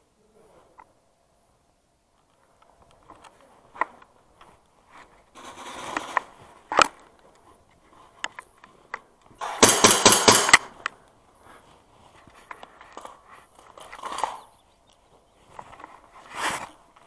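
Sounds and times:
airsoft rifle burst: 9.4 - 10.8.

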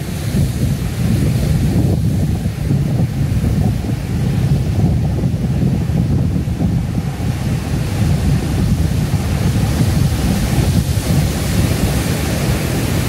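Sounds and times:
heavy surf on rocks: 0.0 - 13.0
wind buffeting microphone: 0.0 - 13.0.

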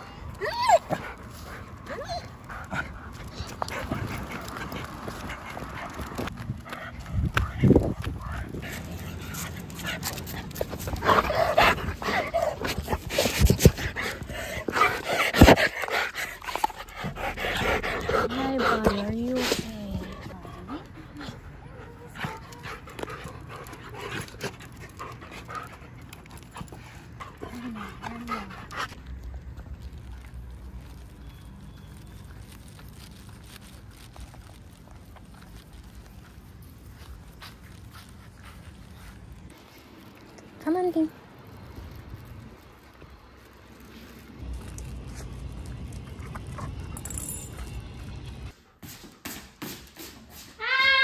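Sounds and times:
dog panting: 1.0 - 29.0.

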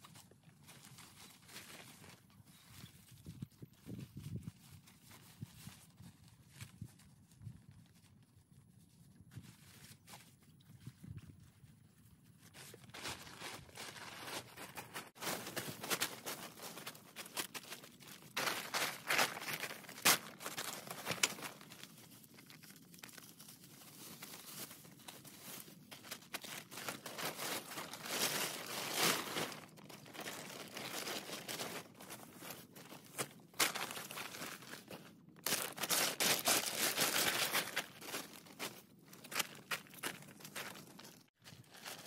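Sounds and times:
nylon tent floor rustling: 0.0 - 42.0
plastic tarp crinkling: 12.5 - 42.0.

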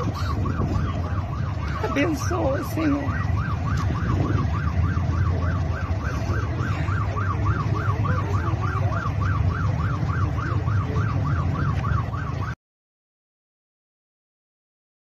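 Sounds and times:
low rumble: 0.0 - 12.5
emergency siren yelping: 0.0 - 12.6.

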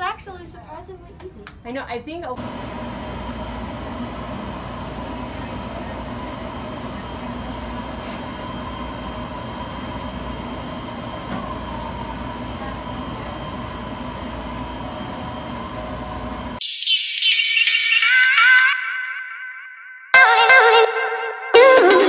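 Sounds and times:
treadmill mechanical hum: 0.0 - 16.6.

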